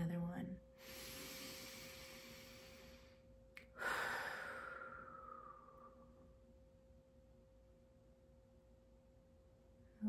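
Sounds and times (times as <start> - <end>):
person sighing: 3.8 - 5.7.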